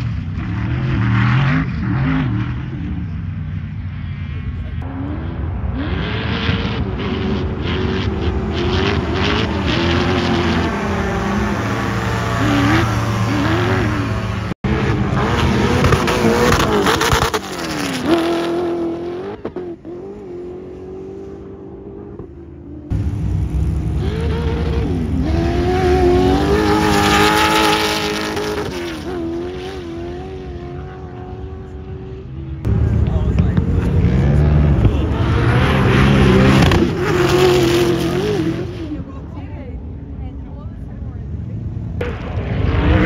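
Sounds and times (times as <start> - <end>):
drag car engines at full throttle: 0.0 - 43.0.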